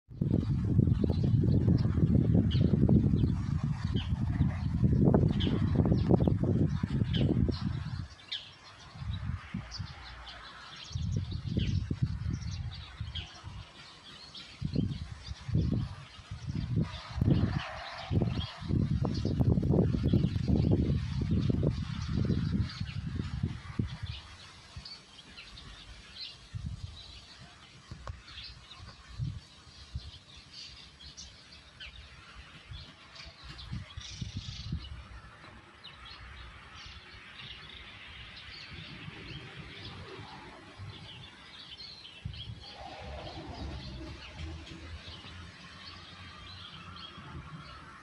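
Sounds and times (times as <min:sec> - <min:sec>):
small birds chirping: 0:00.2 - 0:48.0.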